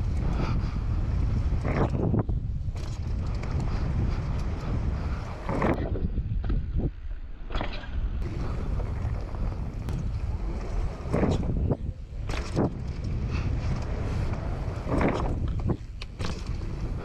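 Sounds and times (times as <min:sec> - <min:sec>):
wind buffeting microphone: 0:00.0 - 0:17.0
tyres rolling on packed dirt: 0:08.2 - 0:17.0.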